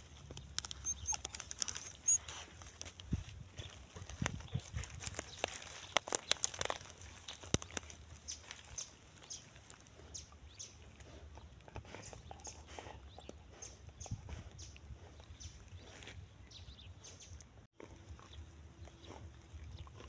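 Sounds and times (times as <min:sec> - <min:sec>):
dry twigs crackling and snapping: 0:00.0 - 0:12.6.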